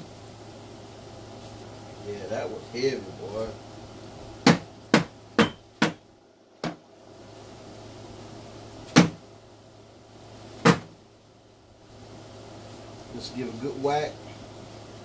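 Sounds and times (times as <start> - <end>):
cardboard carton knocking on plastic bin: 4.4 - 6.0, 8.9 - 9.2, 10.6 - 11.0.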